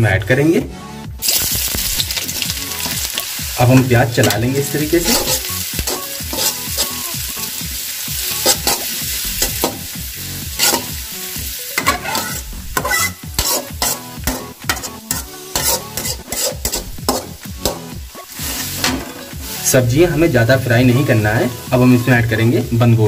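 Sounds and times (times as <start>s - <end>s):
onions sizzling in hot oil: 1.2s - 23.0s
spatula scraping and knocking pan: 3.7s - 6.9s, 11.8s - 19.3s.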